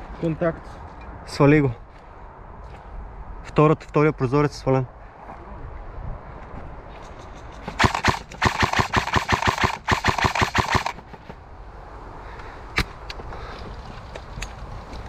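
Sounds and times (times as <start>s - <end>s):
airsoft rifle firing bursts: 7.7s - 11.2s.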